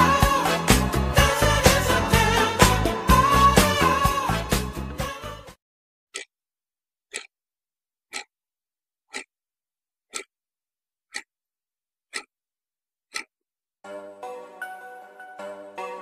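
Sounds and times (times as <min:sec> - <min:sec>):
clock ticking: 0:06.1 - 0:06.3, 0:07.1 - 0:07.3, 0:08.1 - 0:08.3, 0:09.1 - 0:09.3, 0:10.1 - 0:10.3, 0:11.1 - 0:11.3, 0:12.1 - 0:12.3, 0:13.1 - 0:13.4.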